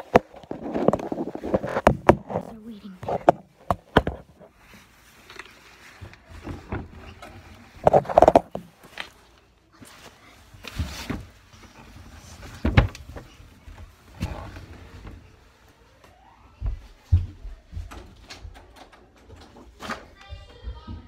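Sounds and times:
phone knocks and rustling: 0.0s - 4.4s, 7.8s - 8.7s.

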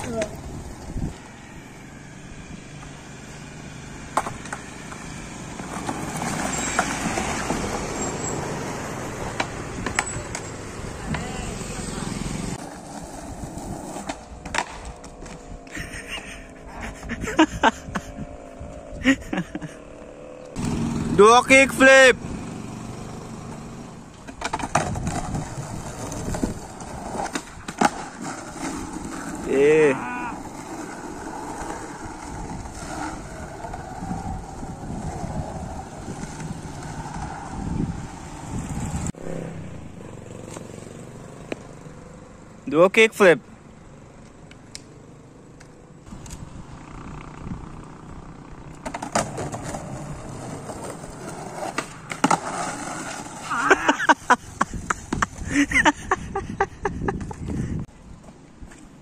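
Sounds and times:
skateboard wheels rolling on concrete: 0.0s - 59.0s
skateboard clacks: 4.1s - 7.8s, 9.3s - 11.3s, 12.6s - 15.7s, 24.2s - 29.4s, 48.7s - 53.5s, 54.5s - 55.6s
skateboard landing clack: 14.0s - 15.3s
skateboard tail pop: 14.4s - 14.9s.

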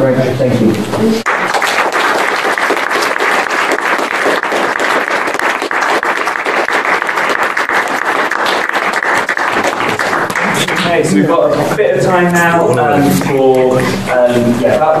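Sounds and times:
audience applauding: 1.2s - 11.1s.

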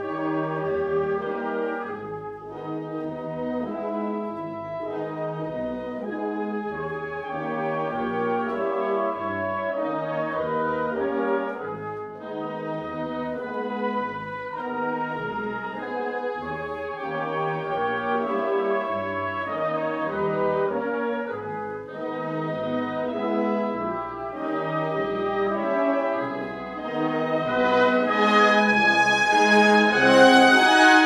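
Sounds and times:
wind band playing funeral march: 0.0s - 31.0s.

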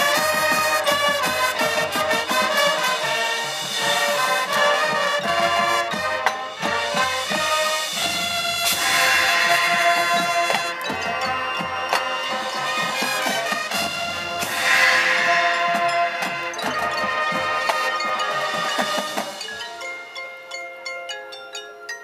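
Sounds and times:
brass chords: 0.0s - 19.4s
quick percussion strikes: 0.0s - 20.9s
cymbal crash: 7.6s - 10.8s, 13.8s - 16.6s.

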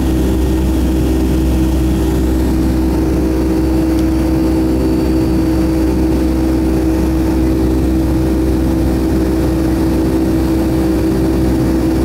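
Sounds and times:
jet engines droning in cabin: 0.0s - 12.0s.

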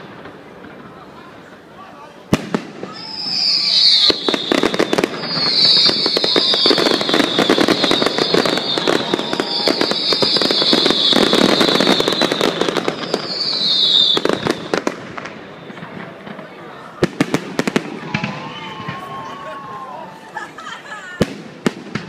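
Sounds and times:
fireworks crackling and popping: 0.0s - 22.0s
whistle falling in pitch: 2.9s - 14.7s.

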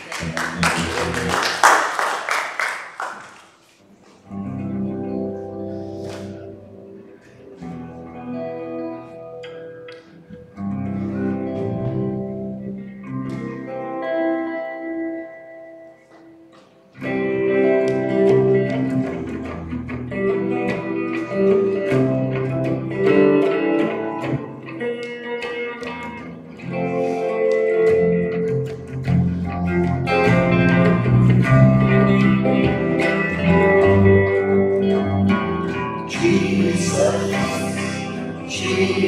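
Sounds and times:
electric guitar picking notes: 4.2s - 39.0s
electric bass: 10.3s - 14.0s, 27.9s - 39.0s.

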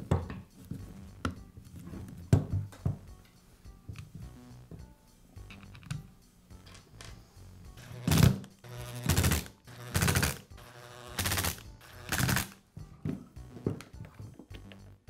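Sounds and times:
power screwdriver running: 7.8s - 12.6s.

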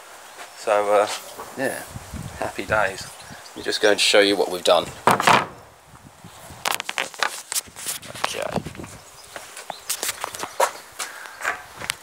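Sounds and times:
footsteps walking: 6.7s - 12.0s.

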